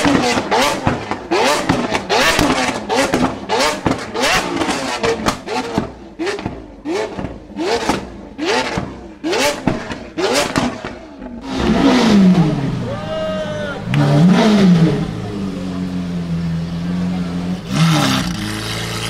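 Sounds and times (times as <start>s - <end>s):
exhaust pops and bangs: 0.0s - 11.8s
car engine revving: 0.0s - 19.0s.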